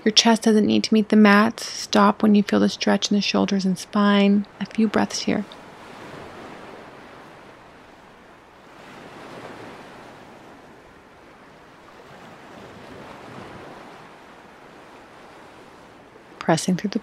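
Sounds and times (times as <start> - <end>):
waves washing onto shore: 4.2 - 17.0.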